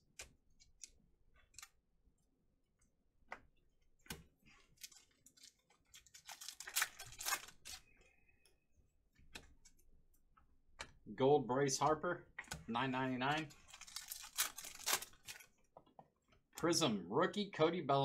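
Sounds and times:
cards clicking and snapping: 3.3 - 7.8, 13.6 - 15.5
foil wrapper crinkling: 4.8 - 7.8, 13.5 - 15.5.

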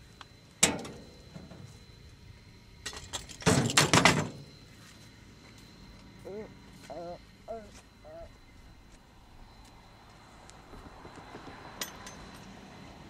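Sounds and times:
metal parts clanking and rattling: 2.8 - 4.4, 11.8 - 12.5
metal toolbox opening with a clank: 2.9 - 4.4.

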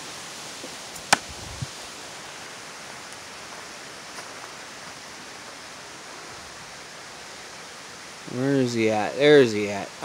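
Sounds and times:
outdoor background hiss: 0.0 - 10.0
dull thump: 1.1 - 1.4.

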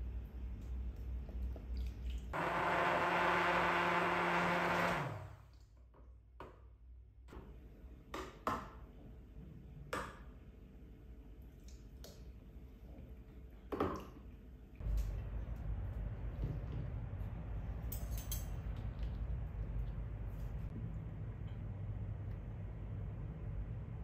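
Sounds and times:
immersion blender running: 2.4 - 5.5.

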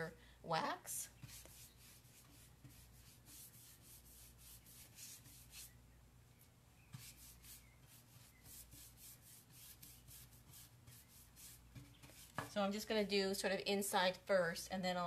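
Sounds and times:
wax brush strokes on wood: 1.0 - 5.8, 6.9 - 12.6.

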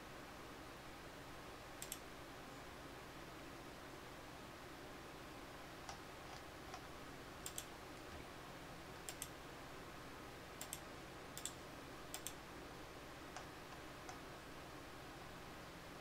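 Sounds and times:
faint steady hiss: 0.0 - 16.0
computer mouse clicking: 1.8 - 2.0, 5.8 - 8.1, 9.0 - 9.4, 10.6 - 12.4, 13.3 - 14.2.

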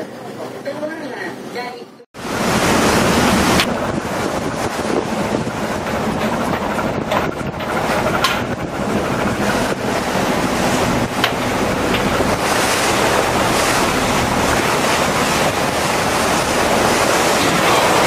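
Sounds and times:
sea water rushing past hull: 2.2 - 18.0
wind buffeting microphone: 2.2 - 18.0.

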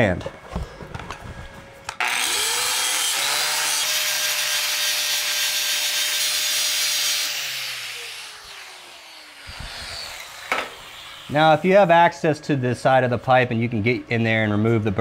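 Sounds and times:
angle grinder cutting pipe: 2.0 - 12.0.

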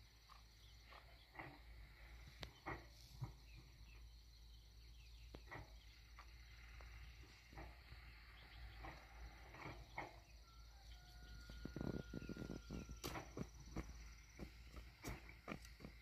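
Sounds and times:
faint knocks and rustles: 0.9 - 4.1, 5.2 - 10.4.

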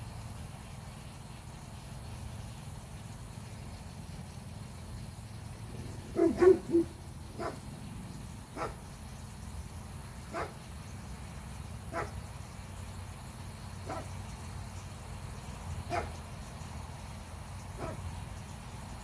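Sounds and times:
dog barking: 6.1 - 7.6, 8.6 - 8.8, 10.3 - 10.6, 11.9 - 12.2, 13.8 - 14.1, 15.9 - 16.2, 17.8 - 18.0.

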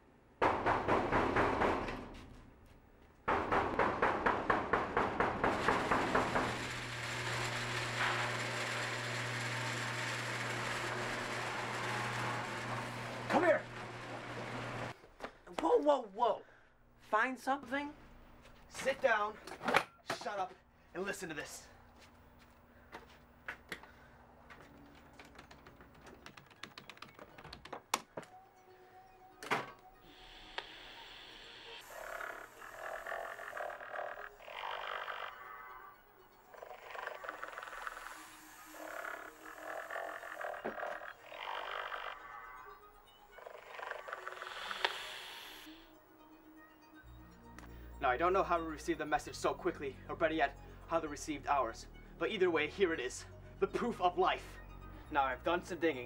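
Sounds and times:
sharp knocks: 0.4 - 2.1, 3.3 - 6.6
garage door rollers clattering: 4.5 - 14.9.

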